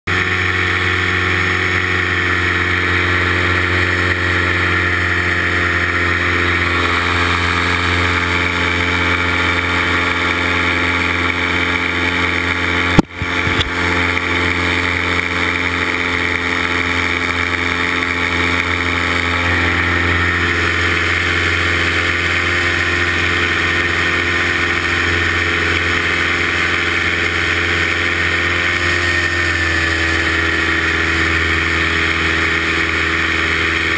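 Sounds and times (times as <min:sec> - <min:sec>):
paramotor engine drone: 0:00.1 - 0:33.9.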